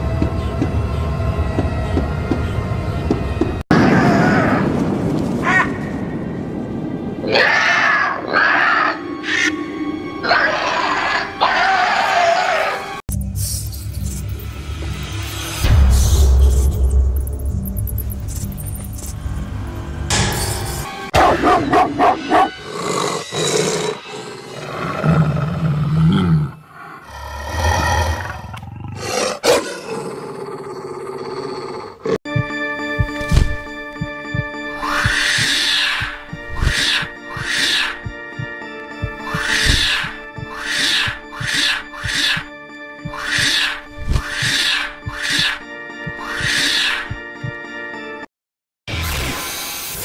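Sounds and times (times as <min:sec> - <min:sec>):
eerie music: 0:00.0 - 0:26.0, 0:32.3 - 0:48.3
animatronic dog barking: 0:21.2 - 0:22.6, 0:29.4 - 0:29.8, 0:39.2 - 0:42.5
animatronic dog growling: 0:22.6 - 0:32.2.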